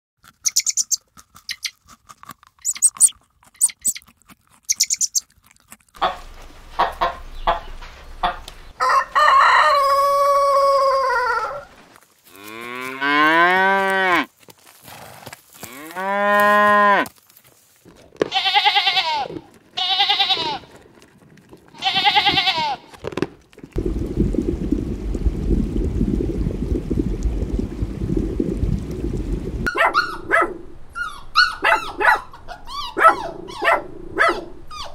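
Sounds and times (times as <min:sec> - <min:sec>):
short high animal calls: 0:02.6 - 0:04.0
cow mooing: 0:15.7 - 0:17.1
steady low rumbling: 0:23.8 - 0:31.0.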